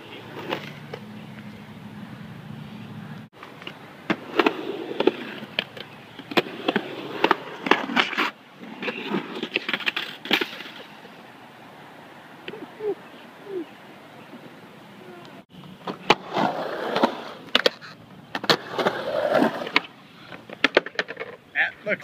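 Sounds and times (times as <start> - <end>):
skateboard wheels rolling on concrete: 0.0 - 22.0
skateboard clacking on concrete: 15.8 - 21.4.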